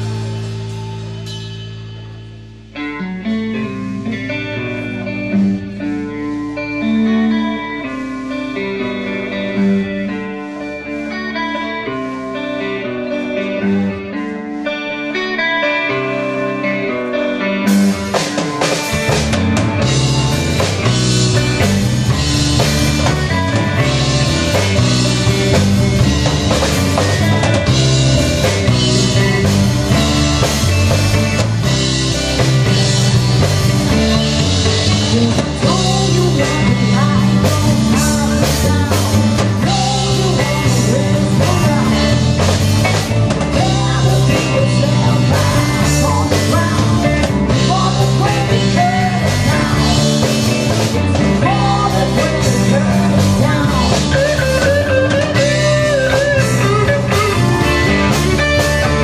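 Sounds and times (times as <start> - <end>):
bass guitar: 0.0 - 59.0
drum kit: 0.0 - 59.0
electric guitars: 0.0 - 59.0
keyboards: 0.0 - 59.0
woman singing: 34.9 - 58.7.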